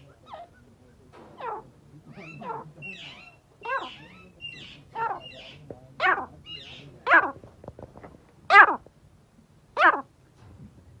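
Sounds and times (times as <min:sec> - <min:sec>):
farm birds calling: 0:00.0 - 0:07.4.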